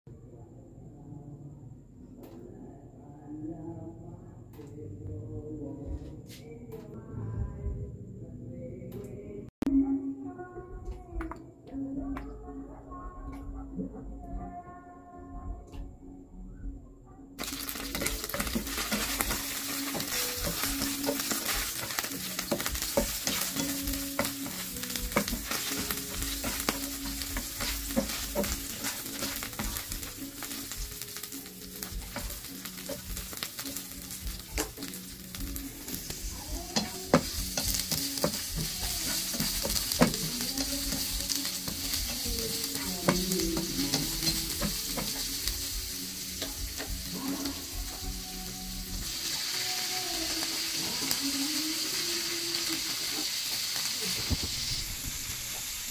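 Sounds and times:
garlic sizzling in hot oil: 17.4 - 55.9.

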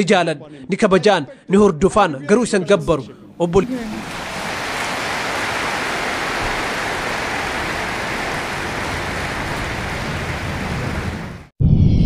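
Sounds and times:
audience applauding: 3.6 - 11.5.

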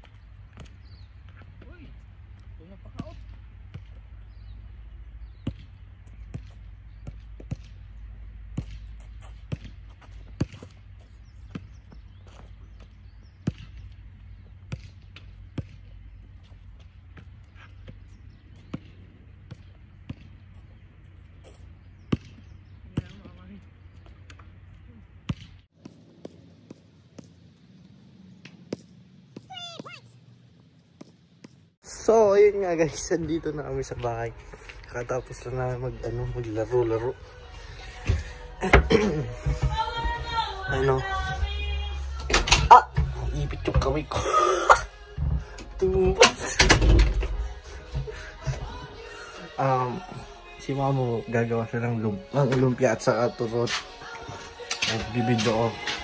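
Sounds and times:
basketball bouncing on hard court: 5.2 - 7.8, 8.5 - 14.0, 14.7 - 16.0, 17.2 - 20.5, 22.0 - 23.5, 25.2 - 27.4.

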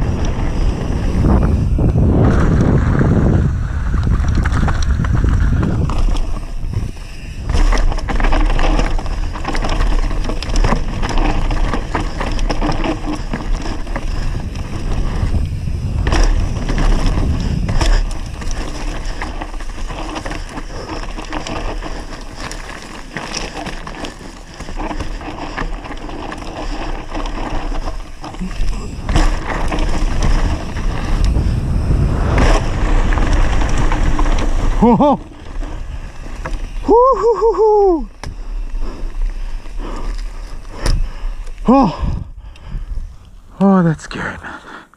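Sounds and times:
wind buffeting microphone: 0.0 - 22.0, 26.8 - 43.5
bike clattering over bumps: 0.0 - 43.2
bike tyres skidding over dirt: 0.0 - 43.5.

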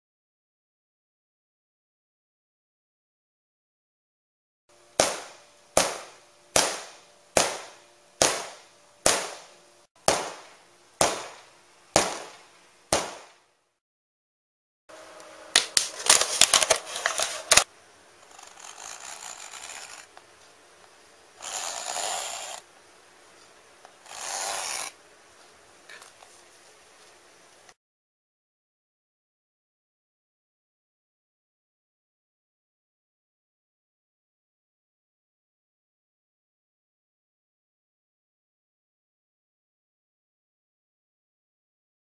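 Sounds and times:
hammer striking fabric: 5.0 - 13.5
scraping and rustling: 15.6 - 17.7
knife scraping plastic bottle: 15.8 - 17.6.

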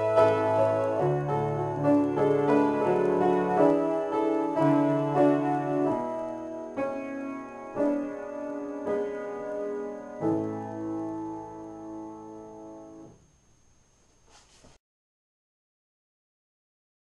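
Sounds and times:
solo upright piano: 0.0 - 13.2.

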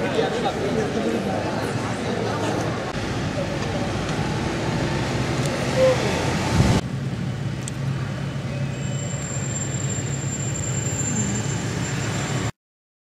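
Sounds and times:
car engine hum and road noise: 2.7 - 11.9.

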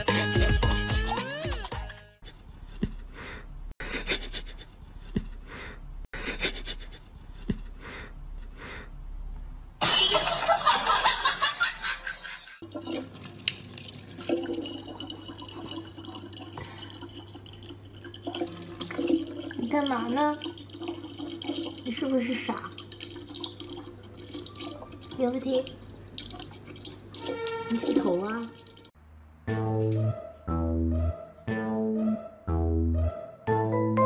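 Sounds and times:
water pouring into plastic bottle: 12.6 - 28.9.

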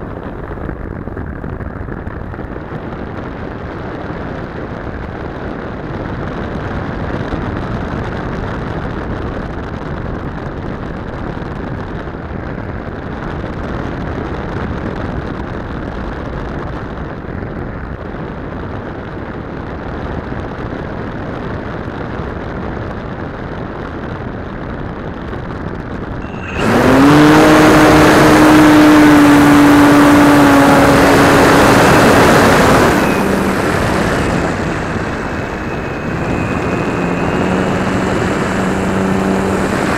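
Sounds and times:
model plane motor droning: 26.2 - 39.9
wind rushing: 26.2 - 39.9.

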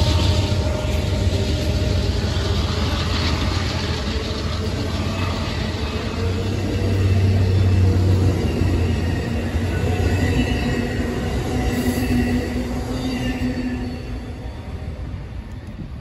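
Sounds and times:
low hum: 0.0 - 9.8
wheels rumbling on rails: 0.0 - 16.0.

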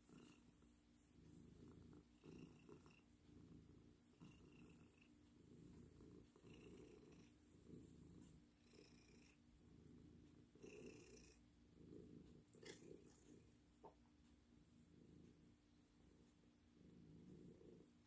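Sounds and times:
cat purring: 0.0 - 18.0.

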